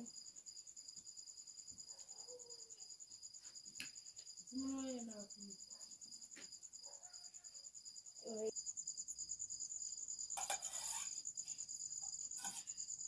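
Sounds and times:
crickets chirping: 0.0 - 13.0
scrape or clatter: 10.4 - 11.3, 12.3 - 12.9.

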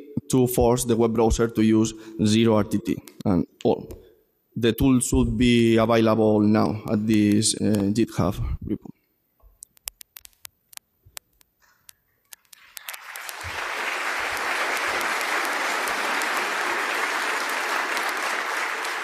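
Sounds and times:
audience applauding: 12.6 - 19.0.

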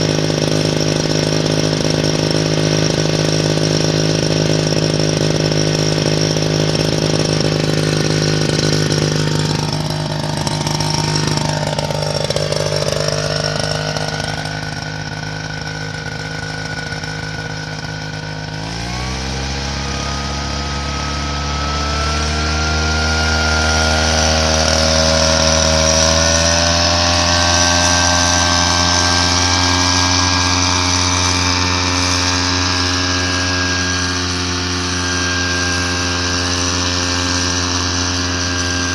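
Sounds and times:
fan whining: 0.0 - 38.9
two-stroke sprayer engine running: 0.0 - 38.9.

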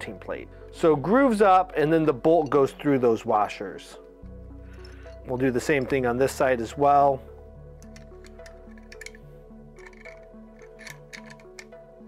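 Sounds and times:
background music: 0.0 - 12.0
plastic bolts clicking and rattling: 7.8 - 9.2, 9.8 - 11.8.

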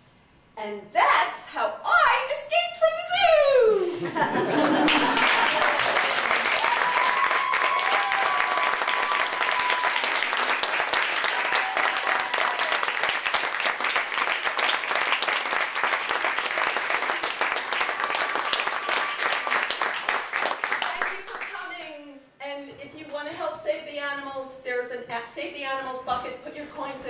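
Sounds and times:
audience applauding: 4.5 - 21.6.

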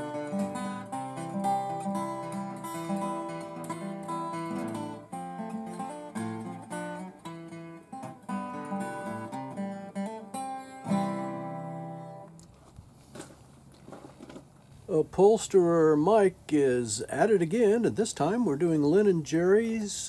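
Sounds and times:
acoustic guitar melody: 0.0 - 12.5.

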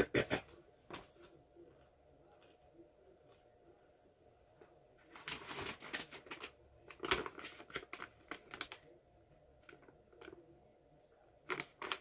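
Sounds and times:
plastic snack bag crinkling: 5.1 - 10.5, 11.3 - 12.0.

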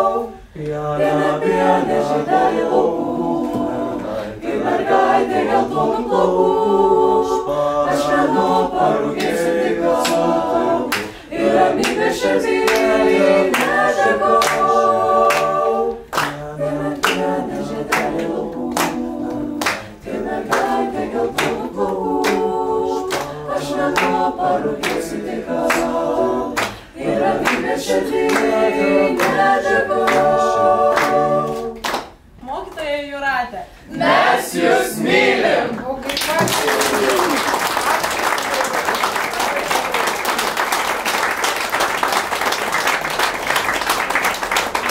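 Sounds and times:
youth choir singing a cappella: 0.0 - 32.1, 33.8 - 35.9.

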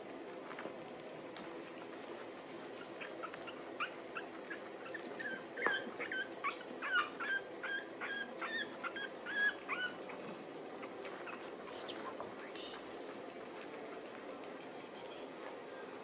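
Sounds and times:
puppies whimpering and yipping: 2.6 - 12.2.

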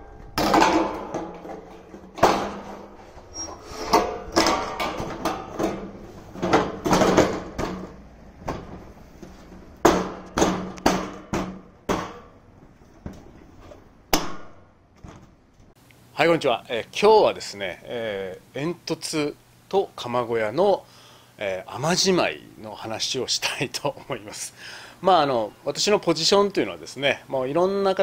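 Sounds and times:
hammer blows on metal roofing: 0.0 - 14.7.

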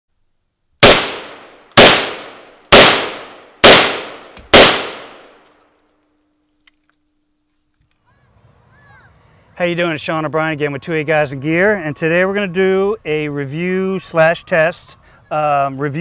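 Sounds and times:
gunshots with echoing tail: 0.8 - 5.4.

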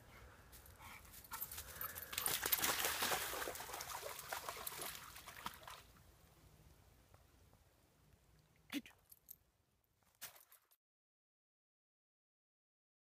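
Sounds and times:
dog running through dry leaves: 1.4 - 5.2
dog splashing in puddle: 2.0 - 5.9.

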